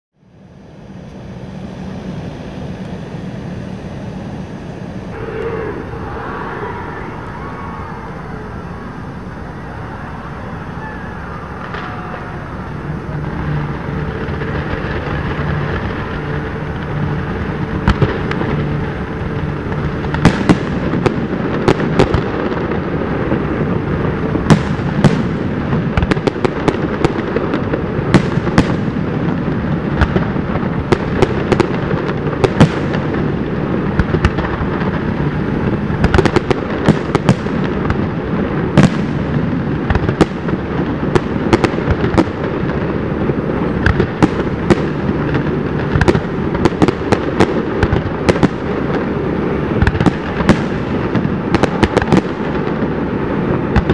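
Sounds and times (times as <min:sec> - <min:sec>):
continuous din: 0:04.4 - 0:20.3
fireworks bursting with sharp bangs: 0:05.1 - 0:53.9.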